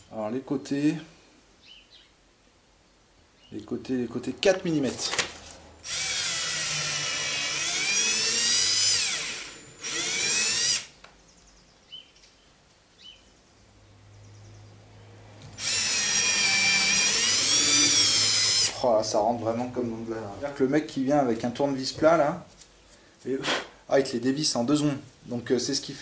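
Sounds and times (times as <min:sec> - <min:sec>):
cordless drill whirring: 0:05.8 - 0:10.9, 0:15.4 - 0:18.8.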